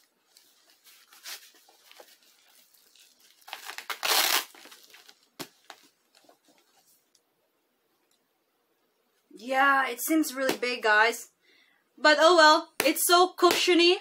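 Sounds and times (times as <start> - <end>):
soft rustling: 0.0 - 3.7, 4.6 - 7.2
velcro strap ripping: 1.0 - 5.5.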